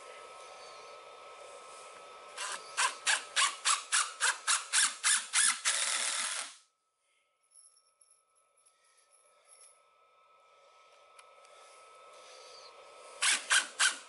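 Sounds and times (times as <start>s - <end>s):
impact driver driving a screw: 2.4s - 6.6s, 13.2s - 14.0s.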